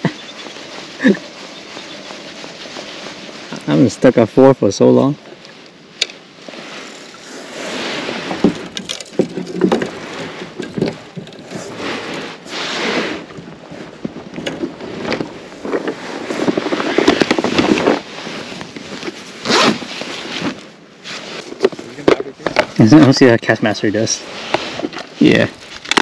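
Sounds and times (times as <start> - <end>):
rustling of fishing gear: 0.0 - 26.0
zipper rasps: 19.0 - 22.0.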